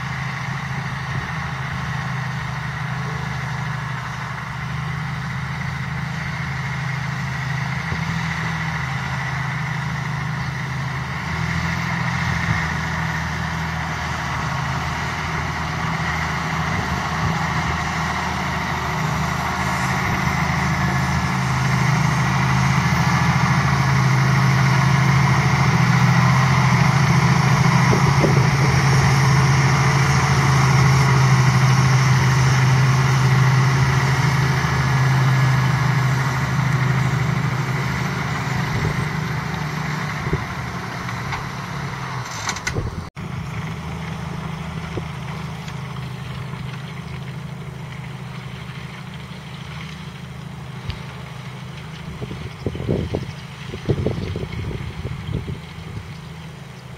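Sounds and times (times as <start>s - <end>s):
tractor diesel engine droning: 0.0s - 56.9s.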